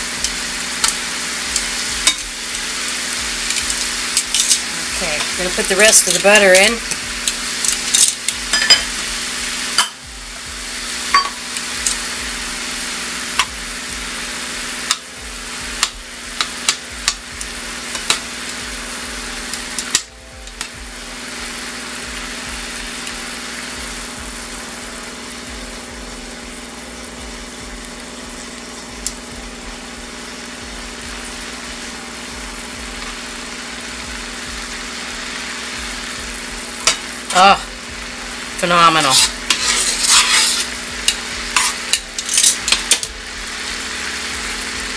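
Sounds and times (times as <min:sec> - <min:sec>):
sauce sizzling in a saucepan: 0:00.0 - 0:44.9
metal tongs clinking on pan: 0:00.8 - 0:02.3, 0:03.5 - 0:05.3, 0:07.3 - 0:08.9, 0:36.8 - 0:37.0, 0:39.1 - 0:43.1.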